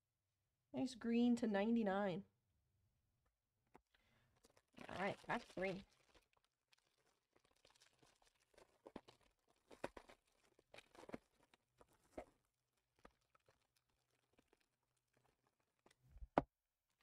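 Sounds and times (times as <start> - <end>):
foil wrapper tearing and crinkling: 4.4 - 15.9.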